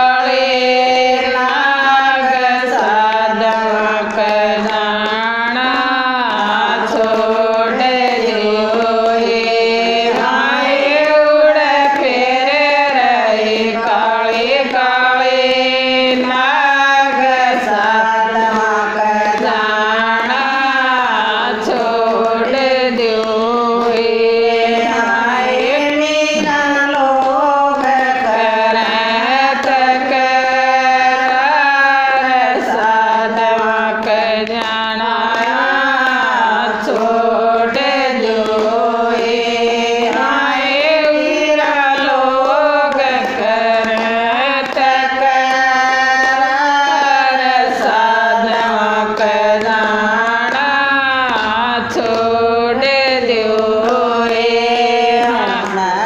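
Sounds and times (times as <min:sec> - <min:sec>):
women singing devotional chant: 0:00.0 - 0:56.0
steady drone: 0:47.7 - 0:56.0.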